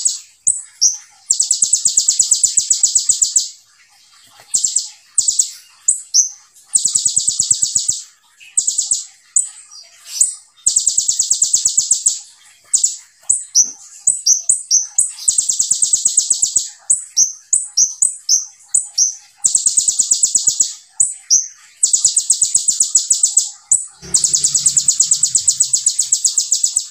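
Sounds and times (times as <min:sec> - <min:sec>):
bird chirps: 0:00.0 - 0:26.9
bird singing high trills: 0:21.3 - 0:26.9.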